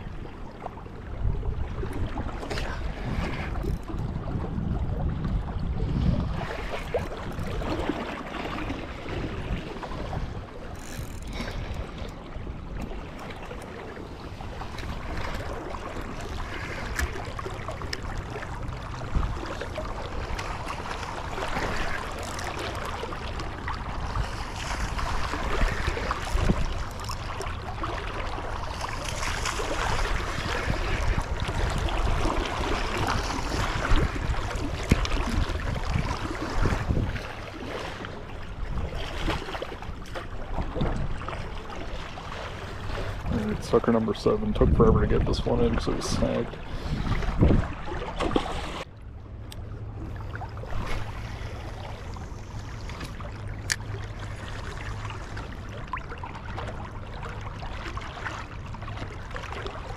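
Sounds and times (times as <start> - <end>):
wind gusting on microphone: 1.1 - 8.1, 29.3 - 37.8, 42.8 - 48.8.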